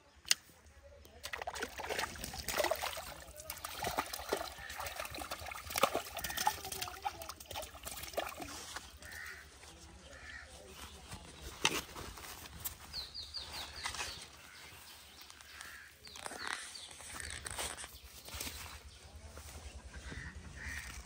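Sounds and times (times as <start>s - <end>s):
fish splashing at water surface: 1.2s - 9.2s
water lapping: 1.2s - 9.4s.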